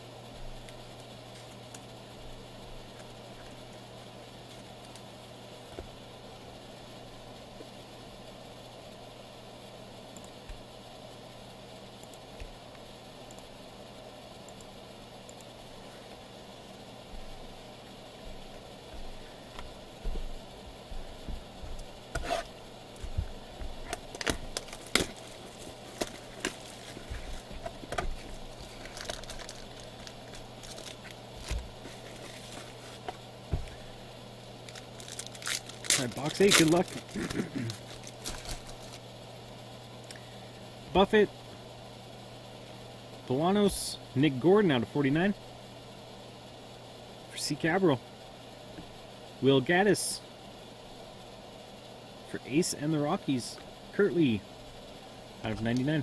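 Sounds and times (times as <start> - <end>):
steady low hum: 0.0 - 56.0
plastic and foil crinkling: 23.8 - 33.2, 34.6 - 39.1.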